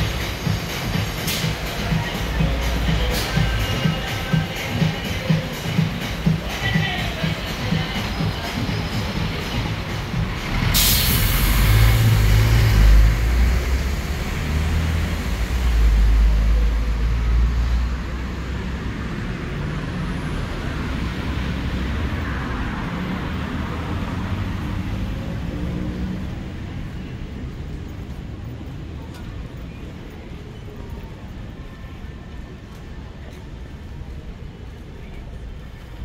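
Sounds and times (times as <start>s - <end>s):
air brakes hissing: 0.0s - 1.8s, 3.1s - 3.5s, 9.0s - 12.8s
diesel engine rumbling: 0.0s - 36.0s
steady traffic noise: 0.0s - 36.0s.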